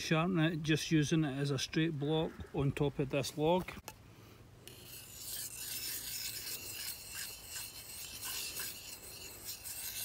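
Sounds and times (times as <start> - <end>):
knife blade scraping on sharpening plate: 4.7 - 10.0.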